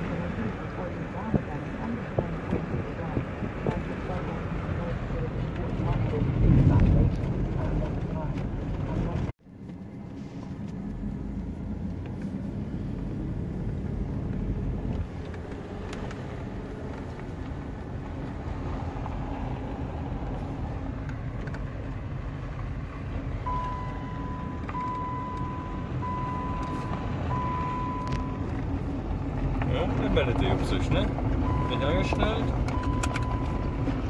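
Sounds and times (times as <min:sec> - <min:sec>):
car rumbling on gravel: 0:00.0 - 0:34.0
high beep: 0:23.5 - 0:28.4.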